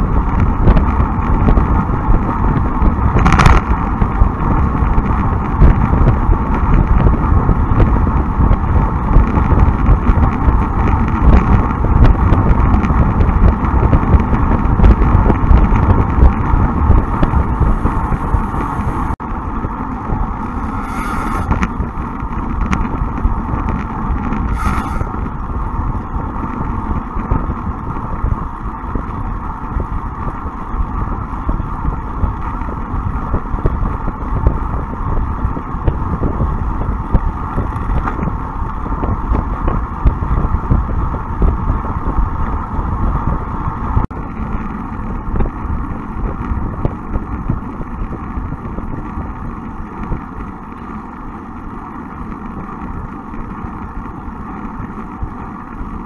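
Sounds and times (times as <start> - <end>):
tyre and road noise: 0.0 - 56.0
wind rushing over microphone: 0.0 - 56.0
brief hisses: 20.7 - 21.5, 24.5 - 25.1.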